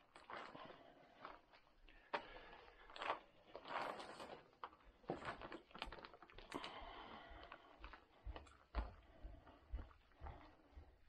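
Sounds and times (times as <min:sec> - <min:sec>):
plastic sheeting crinkling: 0:02.9 - 0:06.7.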